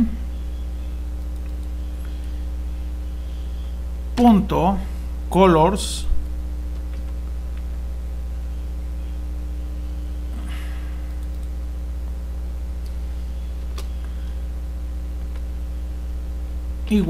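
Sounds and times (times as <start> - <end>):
low electrical hum: 0.0 - 17.0
faint clicks: 1.2 - 2.4, 11.0 - 11.6
short breath: 10.4 - 11.0.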